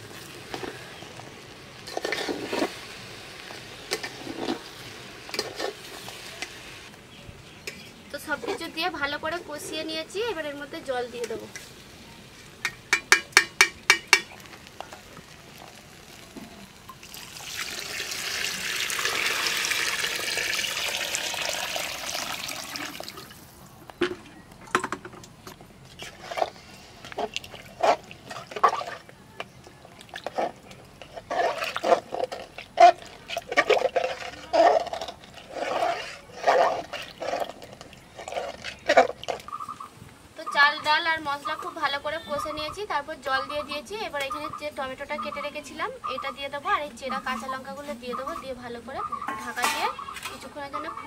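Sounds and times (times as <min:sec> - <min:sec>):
spoon stirring metal pot: 0:05.3 - 0:06.1, 0:12.6 - 0:14.4, 0:26.0 - 0:39.5, 0:49.1 - 0:50.5
spoon tapping pot rim: 0:12.6 - 0:14.3
water pouring into pot: 0:15.4 - 0:23.5.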